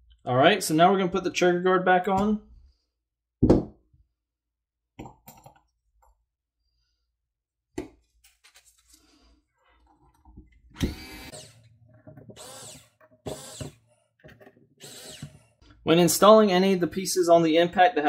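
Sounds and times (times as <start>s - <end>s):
electric screwdriver running: 10.8s - 11.7s, 12.4s - 13.8s, 14.8s - 15.4s.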